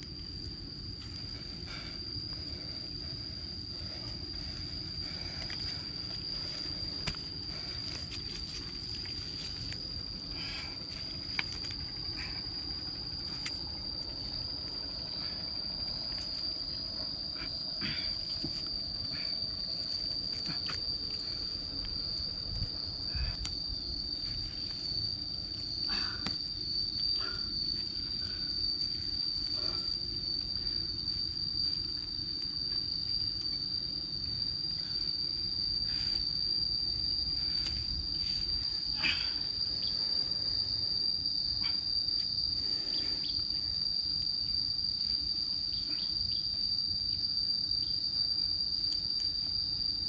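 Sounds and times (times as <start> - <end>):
insect droning: 0.0 - 50.0.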